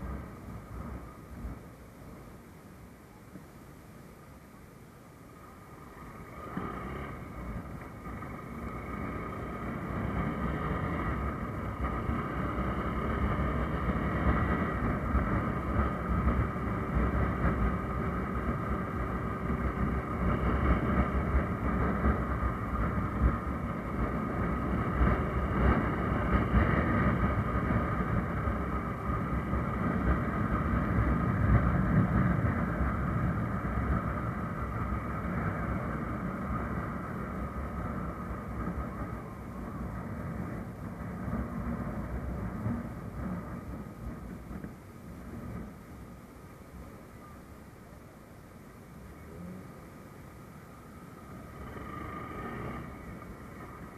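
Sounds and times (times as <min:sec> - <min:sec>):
motorcycle engine running: 0:05.4 - 0:46.2
wind rushing over microphone: 0:05.7 - 0:46.2.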